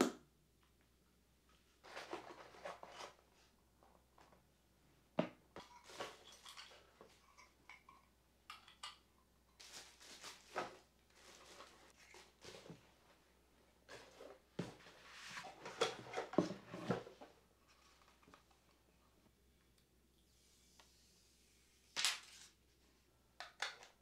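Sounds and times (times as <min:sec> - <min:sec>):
plastic bag and cardboard crinkling: 0:09.6 - 0:13.1.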